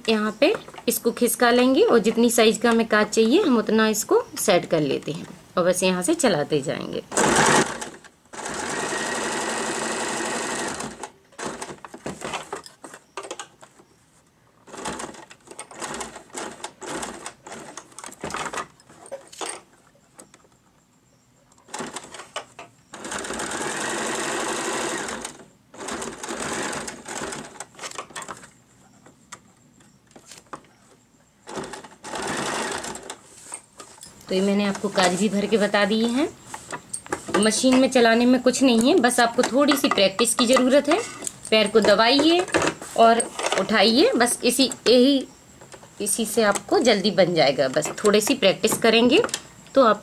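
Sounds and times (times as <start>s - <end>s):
electric sewing machine stitching: 7.1s - 11.8s, 22.9s - 27.6s, 31.5s - 33.2s.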